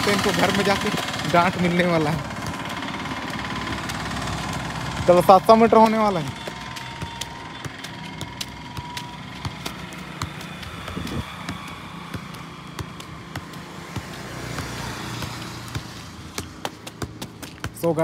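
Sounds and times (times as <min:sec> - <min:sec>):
road traffic noise: 0:00.0 - 0:18.0
football knocks against feet: 0:05.8 - 0:18.0.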